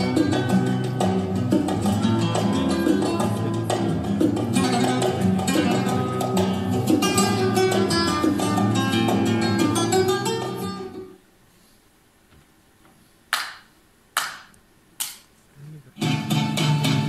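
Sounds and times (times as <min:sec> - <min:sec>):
flamenco guitar music: 0:00.0 - 0:11.2, 0:16.0 - 0:17.0
sharp crack: 0:13.3 - 0:15.3.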